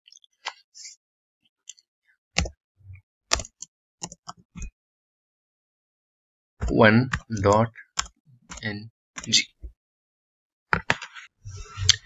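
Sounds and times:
computer keyboard keystrokes: 3.3 - 4.7, 6.6 - 8.6.

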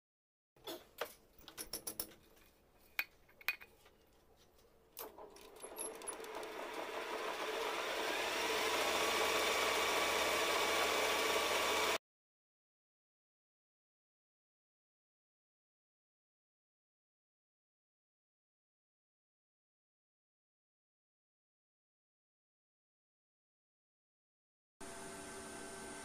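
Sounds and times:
metal lathe running: 5.5 - 12.0.

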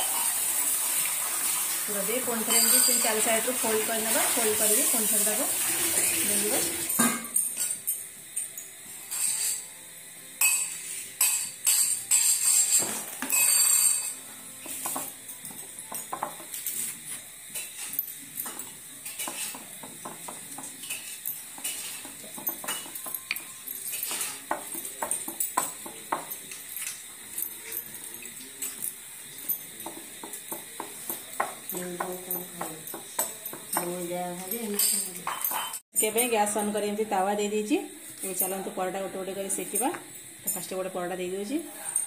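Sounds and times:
bangles clinking: 2.3 - 5.4, 6.2 - 9.7, 10.4 - 36.8.

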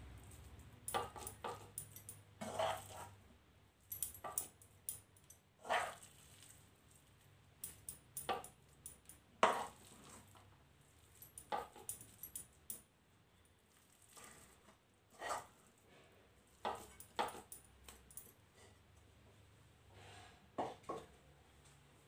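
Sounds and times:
metal spoon scraping glass plate: 2.4 - 3.2, 5.6 - 6.1, 15.1 - 15.5.

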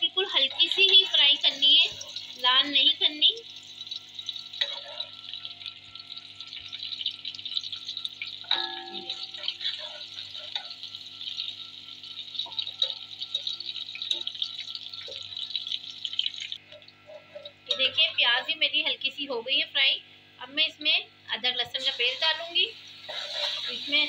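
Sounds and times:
onions sizzling in hot oil: 0.2 - 18.3, 21.7 - 24.0
ladle stirring in pot: 3.7 - 15.5, 23.0 - 24.0.

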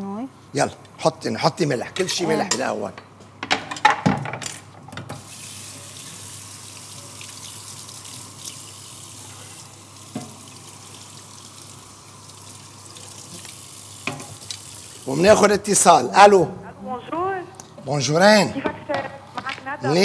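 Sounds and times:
tap running into metal sink: 10.1 - 10.5.

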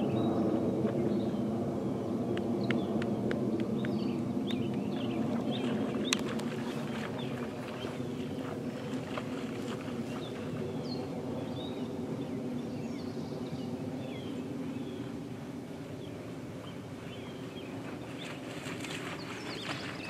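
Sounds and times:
steady low hum: 0.0 - 20.0
small birds chirping: 16.6 - 20.0.

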